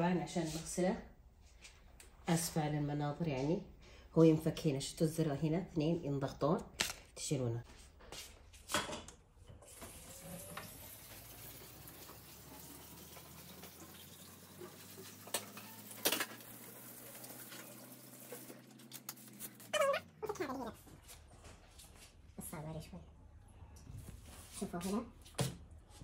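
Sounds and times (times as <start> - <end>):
kitchen tap running: 9.5 - 19.7.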